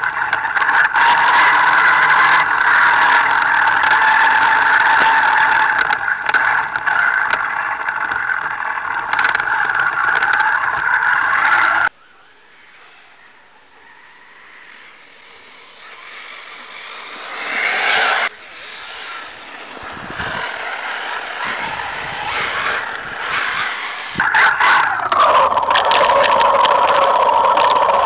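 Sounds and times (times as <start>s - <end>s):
tyres scrabbling on loose dirt: 0.0s - 11.9s, 14.4s - 28.0s
rc car motor whine: 0.0s - 28.0s.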